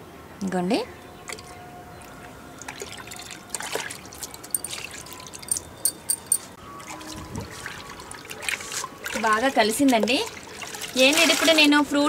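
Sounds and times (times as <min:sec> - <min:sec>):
liquid trickling into water: 0:01.2 - 0:11.9
sharp water splashes: 0:02.1 - 0:05.8, 0:06.8 - 0:11.9
hand stirring water: 0:02.6 - 0:06.6.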